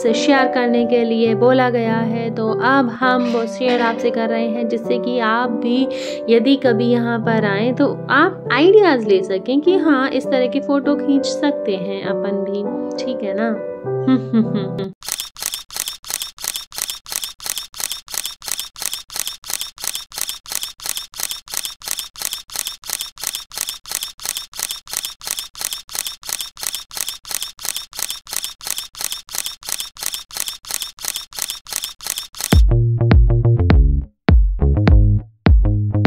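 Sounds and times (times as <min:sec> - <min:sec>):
camera shutter clicks: 0:15.0 - 0:32.6.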